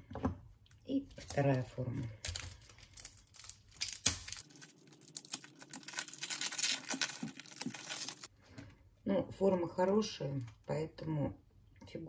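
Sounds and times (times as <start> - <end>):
tape crackling and tearing: 1.2 - 8.3.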